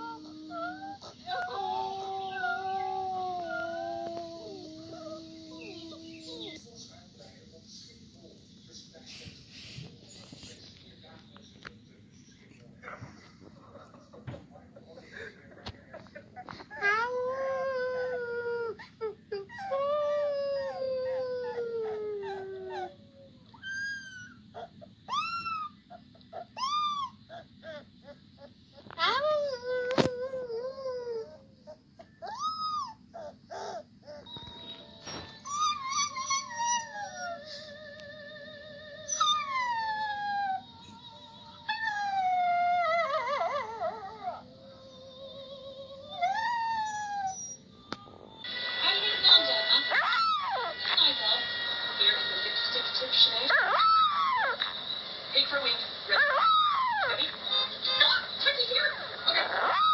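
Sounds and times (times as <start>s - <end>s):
puppy howling: 0.0s - 6.6s, 16.4s - 51.0s, 53.5s - 54.7s, 56.1s - 57.3s, 59.4s - 59.9s.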